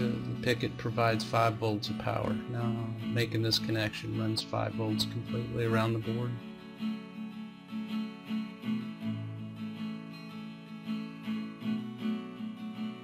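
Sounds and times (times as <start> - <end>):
acoustic guitar plucked notes: 0.0 - 13.0.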